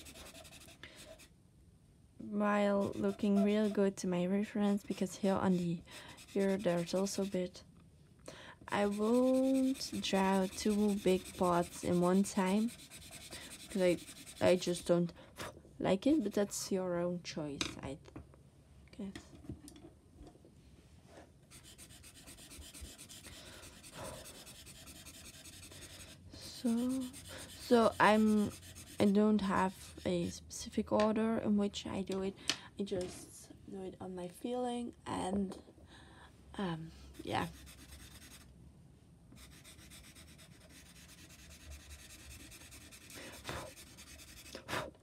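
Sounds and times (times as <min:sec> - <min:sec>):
pencil scratching on paper: 0:00.0 - 0:01.3, 0:02.7 - 0:04.0, 0:04.6 - 0:07.5, 0:08.7 - 0:14.8, 0:21.5 - 0:30.1, 0:37.1 - 0:38.4, 0:39.4 - 0:44.6.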